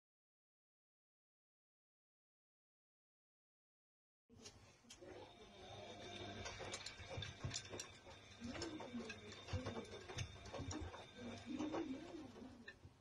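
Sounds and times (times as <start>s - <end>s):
washing machine humming: 4.9s - 13.0s.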